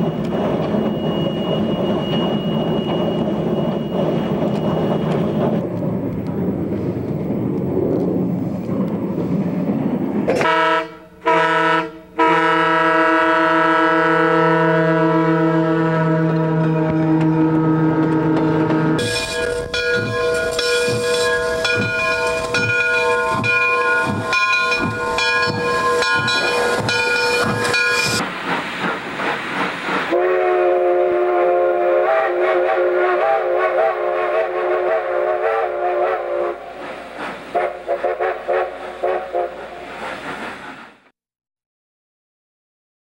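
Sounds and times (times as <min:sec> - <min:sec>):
steam locomotive chime whistle: 0:00.0 - 0:05.6, 0:10.4 - 0:28.2, 0:30.1 - 0:36.8
steam hissing: 0:19.0 - 0:41.1.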